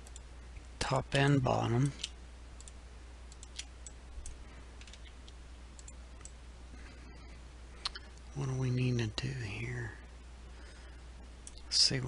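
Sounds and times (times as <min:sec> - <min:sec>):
faint steady hum and hiss: 0:00.0 - 0:12.0
computer mouse and keyboard clicks: 0:01.8 - 0:06.4.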